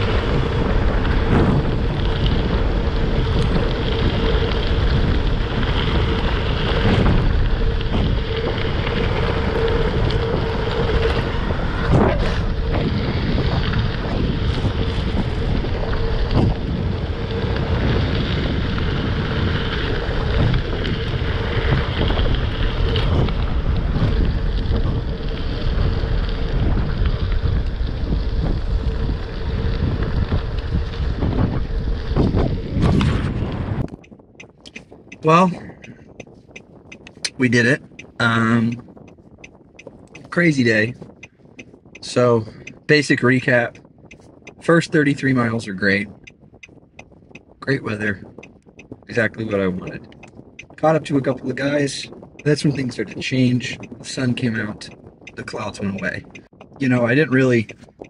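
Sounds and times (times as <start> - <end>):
tyres rumbling over gravel: 0.0 - 33.9
stones and bike rattling: 0.0 - 58.0
wind buffeting microphone: 0.0 - 58.0.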